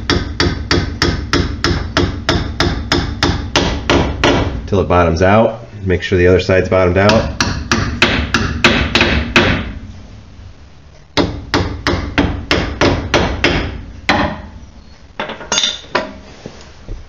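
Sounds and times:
hammer tapping on metal: 11.2s - 14.5s.

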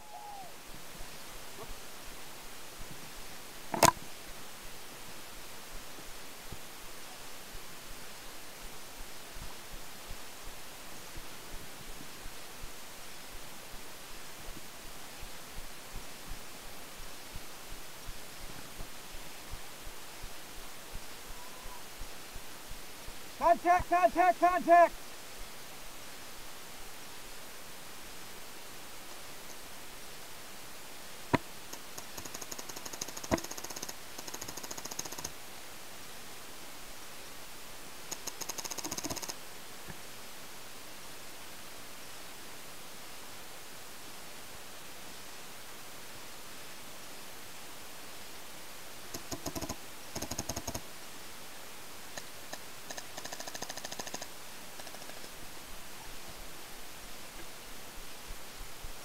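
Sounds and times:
steady hiss: 0.0s - 59.0s
rapid light ticks: 31.3s - 35.4s, 38.1s - 40.0s, 49.1s - 50.9s, 52.1s - 55.4s.

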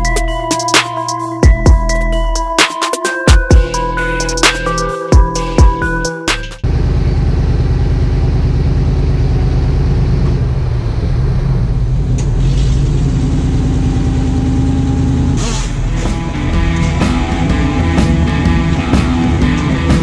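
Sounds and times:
electronic music: 0.0s - 6.6s, 15.4s - 20.0s
engine running: 6.6s - 20.0s.

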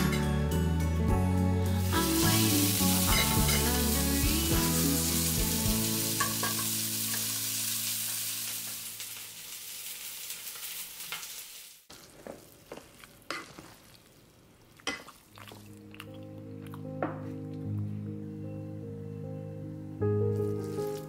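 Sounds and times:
fish sizzling in oil: 1.8s - 15.2s.

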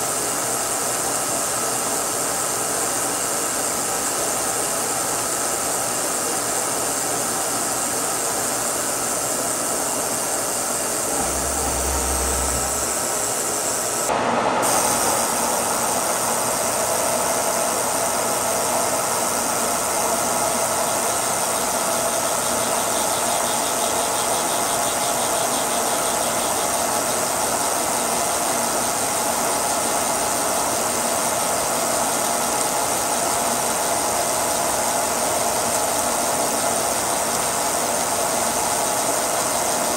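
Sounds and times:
milling machine cutting steel: 7.6s - 14.1s, 19.4s - 39.9s.

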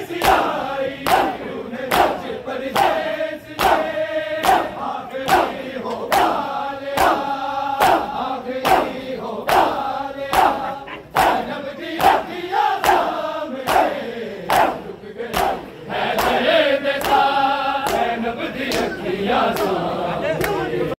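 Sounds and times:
men chanting a lament: 0.0s - 20.9s
hands slapping chests: 3.6s - 3.8s, 7.0s - 10.6s, 12.8s - 15.6s, 17.8s - 18.1s.

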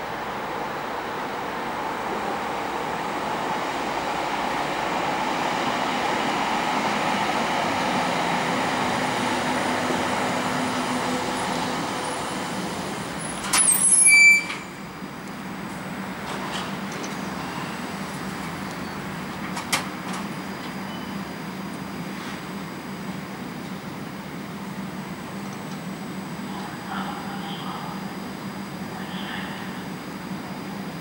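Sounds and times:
train running and braking: 0.0s - 31.0s
high-pitched brake squeal: 13.6s - 14.8s.

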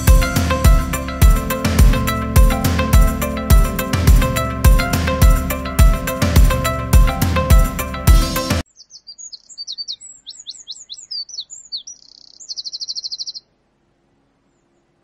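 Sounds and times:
music: 0.0s - 8.6s
songbird singing: 8.6s - 13.6s, 14.4s - 15.0s.

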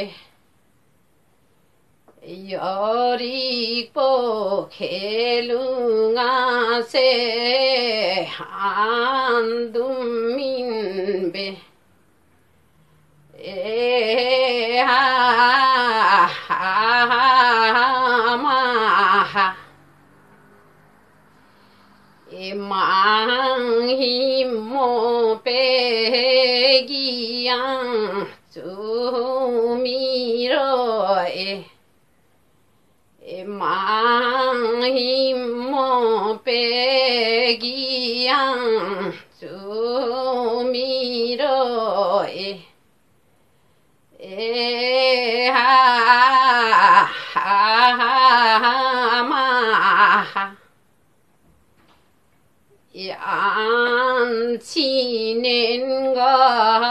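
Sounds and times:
woman singing unaccompanied: 0.0s - 0.4s, 2.0s - 11.9s, 13.2s - 20.0s, 21.5s - 31.9s, 33.2s - 42.8s, 44.1s - 50.7s, 52.8s - 56.9s
singer breathing: 21.3s - 22.3s.

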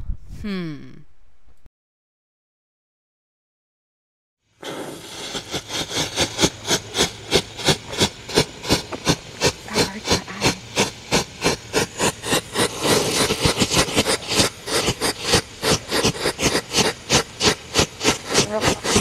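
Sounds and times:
firework hissing and crackling: 4.5s - 19.0s.

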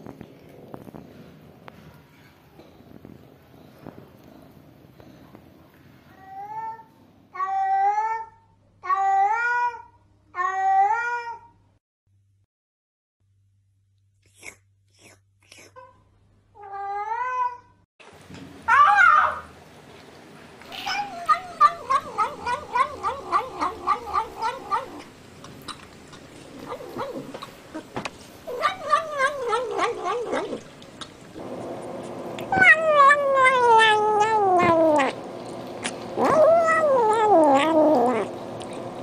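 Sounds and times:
cats warbling while eating: 18.7s - 19.5s, 20.6s - 38.9s
cat long falling cry: 32.5s - 35.1s.

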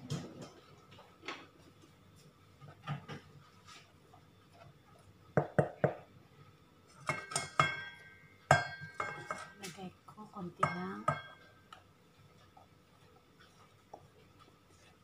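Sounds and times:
metal bowls knocking and clinking: 6.9s - 9.8s, 10.6s - 11.7s.

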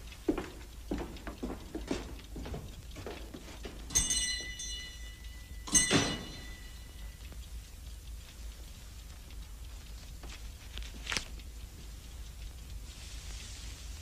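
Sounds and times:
small metal bell ringing: 3.9s - 7.2s.

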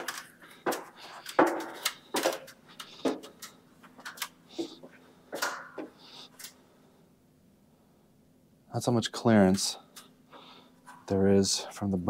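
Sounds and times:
knocks on stepladder: 0.0s - 2.4s
faint steady hum: 0.0s - 12.0s.

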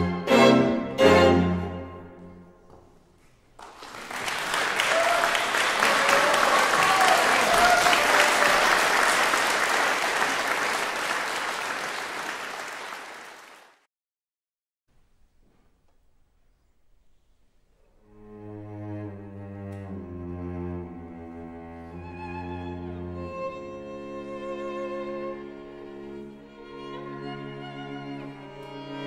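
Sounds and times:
string quartet chord: 0.0s - 2.4s
audience applauding: 3.6s - 13.9s.

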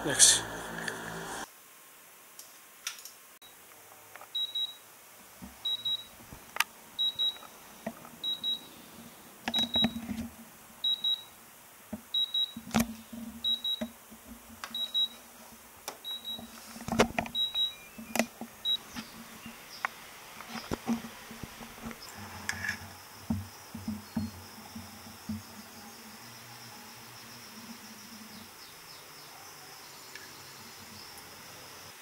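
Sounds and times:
buzzer double beeps: 5.7s - 6.1s, 10.9s - 11.3s, 12.2s - 12.6s, 13.4s - 13.8s, 14.8s - 15.2s, 16.1s - 16.5s
handling clicks and knocks: 11.9s - 14.8s, 15.9s - 19.1s.

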